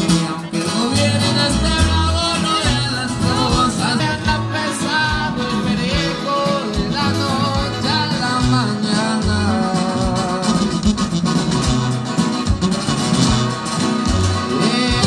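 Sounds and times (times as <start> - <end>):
person singing: 0.1 - 10.9, 14.3 - 15.0
repeating low bass line: 0.9 - 15.0.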